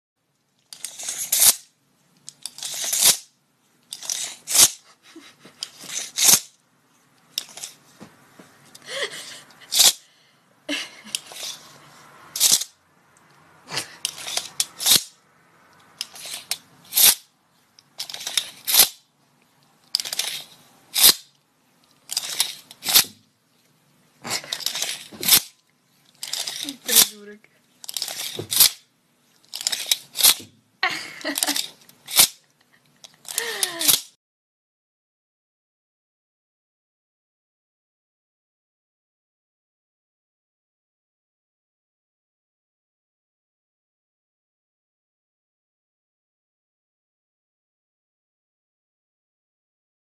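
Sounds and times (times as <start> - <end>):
tape measure blade snapping back: 0.7 - 3.3, 3.9 - 6.6, 9.7 - 10.0, 12.3 - 12.7, 14.0 - 15.2, 16.0 - 17.3, 18.0 - 19.0, 19.9 - 21.4, 22.0 - 23.2, 24.3 - 25.6, 26.2 - 27.2, 27.8 - 28.8, 29.5 - 30.5, 31.3 - 32.5, 33.3 - 34.2.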